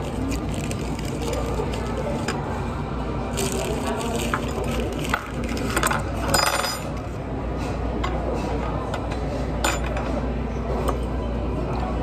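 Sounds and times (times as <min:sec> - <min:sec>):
restaurant background hum: 0:00.0 - 0:12.0
cutlery and dishes clinking: 0:04.3 - 0:07.0.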